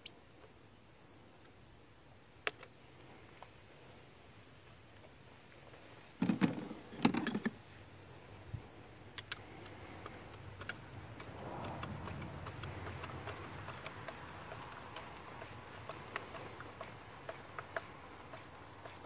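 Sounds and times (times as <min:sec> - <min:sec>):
tool rattling and clicking: 0:09.2 - 0:19.0.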